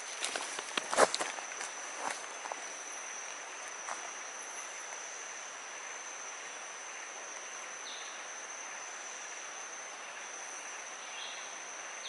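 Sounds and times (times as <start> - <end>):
crackling rustles: 0.0 - 5.1
high insect buzz: 0.0 - 12.0.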